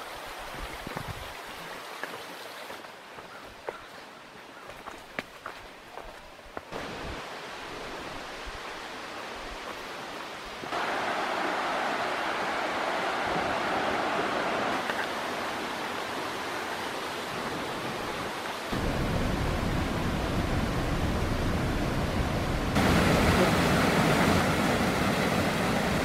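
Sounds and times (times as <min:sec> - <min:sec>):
waterfall and river rushing: 0:00.0 - 0:03.2, 0:06.7 - 0:26.0.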